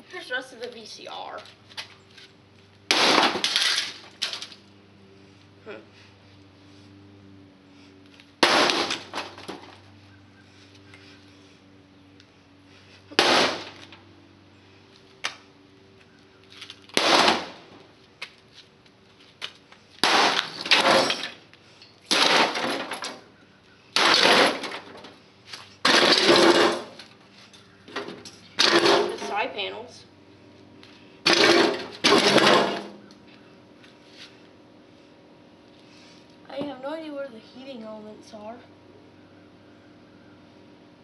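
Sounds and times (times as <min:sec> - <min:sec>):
crashing impacts on metal: 0:02.9 - 0:04.4, 0:08.4 - 0:09.8, 0:13.1 - 0:13.9, 0:16.9 - 0:17.7, 0:20.0 - 0:21.4, 0:22.0 - 0:23.3, 0:24.0 - 0:25.1, 0:25.8 - 0:27.0, 0:28.0 - 0:29.4, 0:31.2 - 0:33.0.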